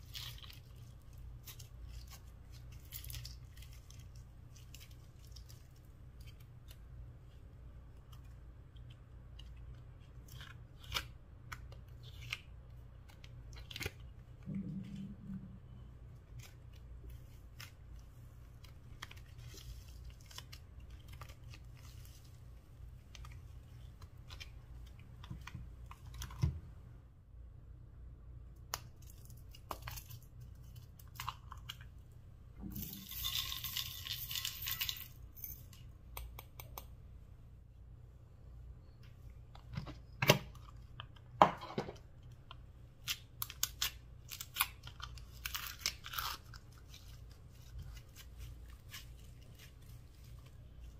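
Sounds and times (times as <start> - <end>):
steady low hum: 0.0 - 33.2.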